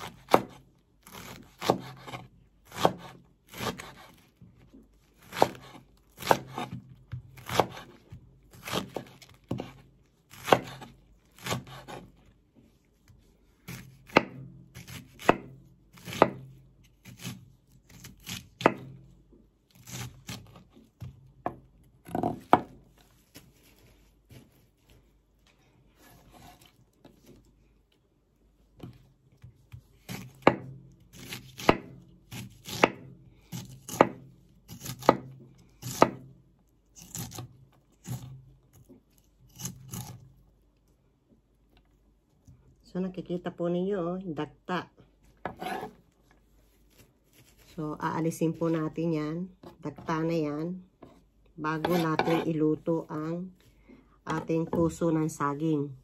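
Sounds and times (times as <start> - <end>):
knife chopping on cutting board: 1.2 - 4.2, 5.3 - 8.0, 8.6 - 12.0, 13.7 - 19.0, 30.0 - 33.0, 33.6 - 36.2, 45.4 - 45.9, 51.8 - 52.5.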